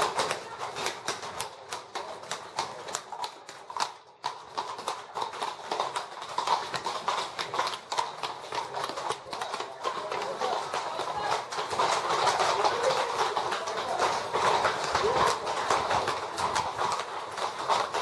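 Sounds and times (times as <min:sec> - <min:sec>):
hooves clopping on pavement: 0:00.0 - 0:18.0.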